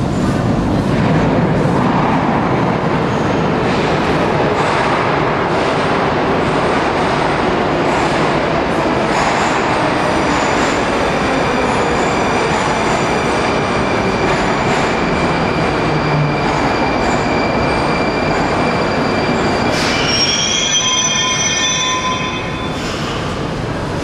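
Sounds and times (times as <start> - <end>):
train wheels rumbling on rails: 0.0 - 24.0
high whining wheel squeal: 15.0 - 23.0.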